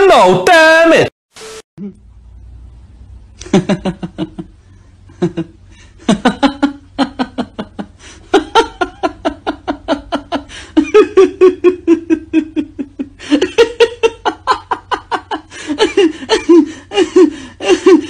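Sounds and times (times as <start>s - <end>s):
person laughing: 1.8s - 2.0s, 3.4s - 18.0s.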